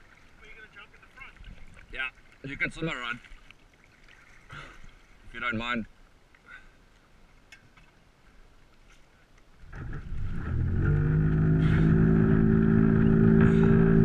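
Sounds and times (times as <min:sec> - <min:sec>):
boat engine starting and idling: 0:09.6 - 0:14.0.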